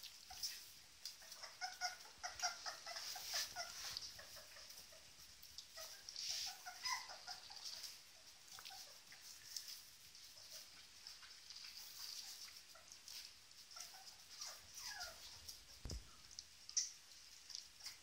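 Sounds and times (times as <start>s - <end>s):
puppies squeaking and whimpering: 1.2s - 9.4s, 13.7s - 16.9s
wet smacking and lapping: 15.8s - 18.0s.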